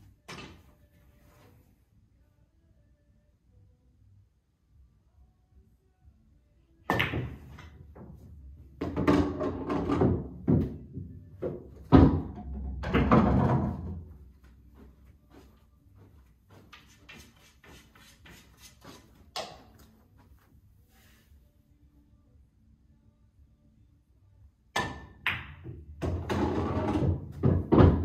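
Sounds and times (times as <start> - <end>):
cue striking balls: 6.9 - 8.1, 8.8 - 14.1, 24.8 - 28.0.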